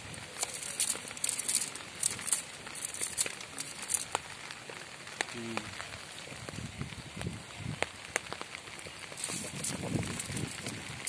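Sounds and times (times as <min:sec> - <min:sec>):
wet mesh rustling: 0:00.0 - 0:05.0, 0:08.8 - 0:11.0
net weights clicking: 0:00.3 - 0:04.2.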